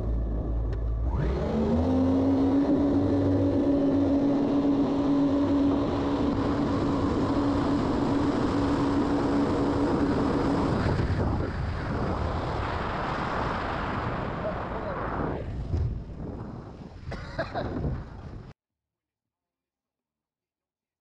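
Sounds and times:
jet boat engine revving: 0:00.0 - 0:15.3.

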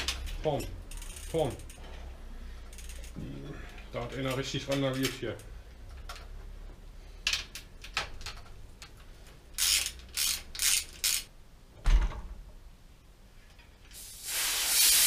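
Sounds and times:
bike wheel clicks and ratcheting: 0:00.0 - 0:02.0, 0:02.6 - 0:03.2, 0:09.6 - 0:11.3.

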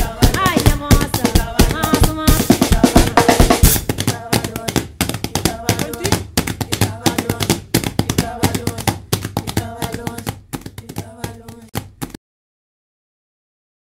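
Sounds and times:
women singing: 0:00.0 - 0:11.8
hands slapping cloth pads: 0:03.4 - 0:12.2.

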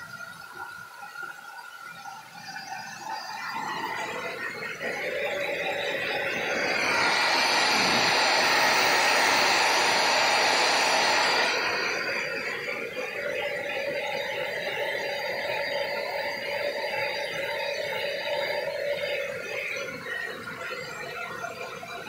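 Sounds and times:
hair dryer blowing air: 0:03.4 - 0:19.0.

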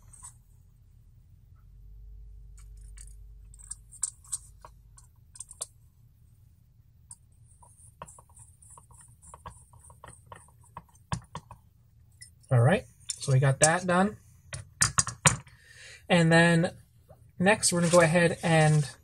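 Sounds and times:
small metal parts clicking: 0:02.6 - 0:04.7.

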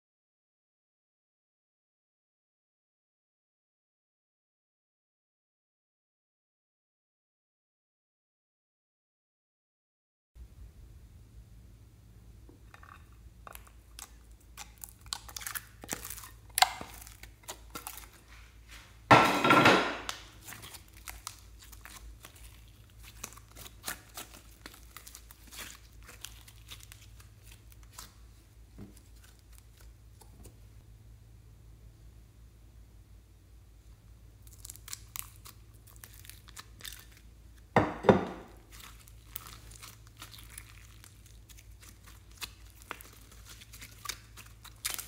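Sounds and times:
slime squelch: 0:12.6 - 0:19.1, 0:20.0 - 0:30.8, 0:33.8 - 0:45.0
slime crackling and popping: 0:13.5 - 0:18.3, 0:20.0 - 0:30.3, 0:34.4 - 0:37.7, 0:38.5 - 0:45.0.

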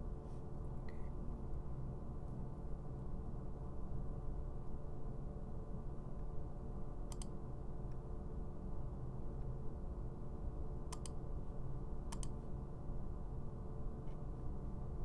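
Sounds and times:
steady low hum: 0:00.0 - 0:15.0
computer mouse clicking: 0:07.1 - 0:07.4, 0:10.9 - 0:11.2, 0:12.1 - 0:12.4.

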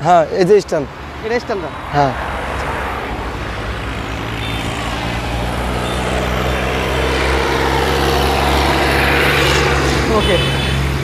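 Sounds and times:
large vehicle engine passing: 0:01.9 - 0:11.0.

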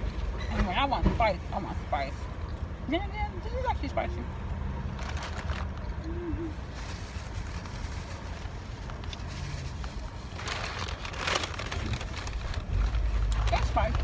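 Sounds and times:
low rumble inside a car: 0:00.0 - 0:14.0
rustling: 0:04.9 - 0:05.9, 0:06.6 - 0:14.0.

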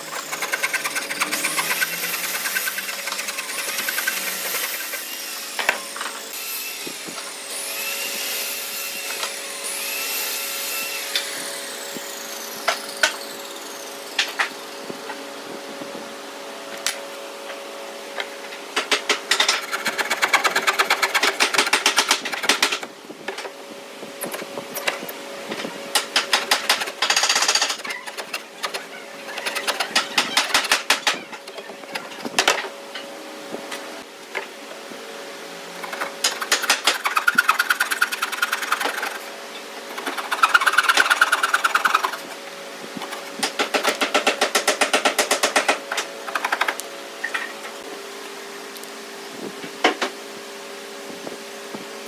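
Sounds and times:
coping saw cutting wood: 0:00.0 - 0:11.1, 0:19.3 - 0:22.9, 0:26.2 - 0:31.0, 0:35.8 - 0:42.4
steady hum: 0:14.1 - 0:49.6.

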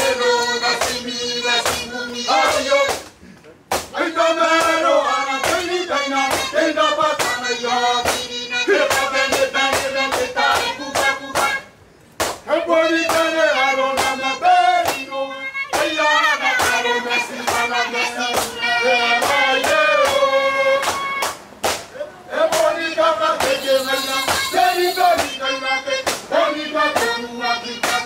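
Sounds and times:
voices singing: 0:00.0 - 0:03.0, 0:03.9 - 0:11.8, 0:12.5 - 0:21.3, 0:21.9 - 0:28.0
clapped beat: 0:03.7 - 0:04.0, 0:12.2 - 0:12.4, 0:20.8 - 0:21.9.

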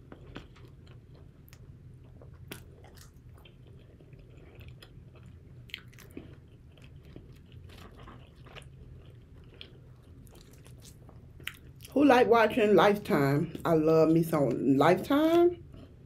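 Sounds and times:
person chewing crunchy food: 0:00.0 - 0:12.0
steady low hum: 0:00.0 - 0:16.0.

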